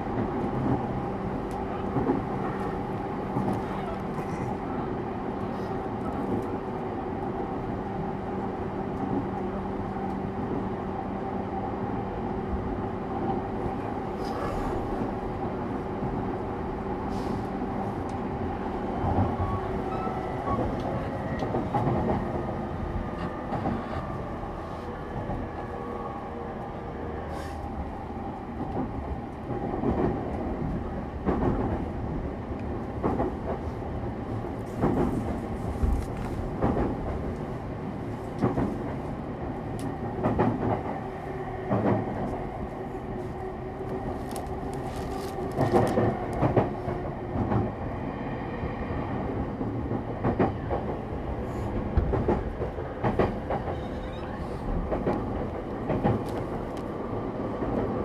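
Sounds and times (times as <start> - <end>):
rail joints clacking: 18.9 - 24.4, 34.4 - 47.8, 49.4 - 58.0.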